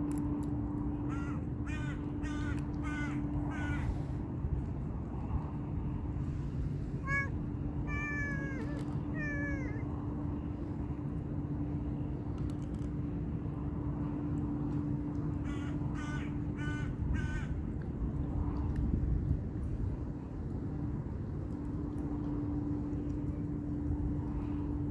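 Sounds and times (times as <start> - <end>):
low steady hum: 0.0 - 24.9
crow cawing: 1.1 - 4.0, 15.4 - 17.6
cat meowing: 7.0 - 9.8.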